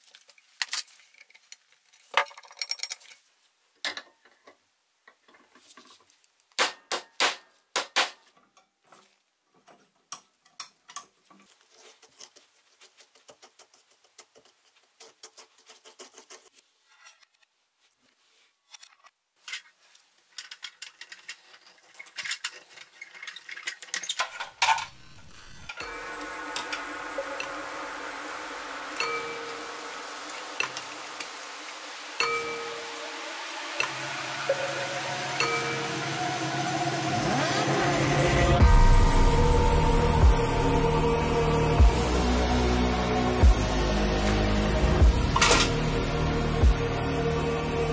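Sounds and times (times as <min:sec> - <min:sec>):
metal toy parts clinking: 0:00.6 - 0:03.3, 0:20.3 - 0:25.1
steady held tones: 0:24.9 - 0:46.0.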